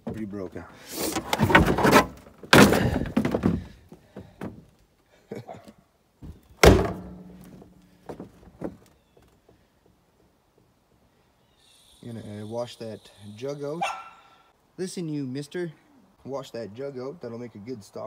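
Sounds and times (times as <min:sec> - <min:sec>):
scrap items thunking: 0:00.9 - 0:04.6.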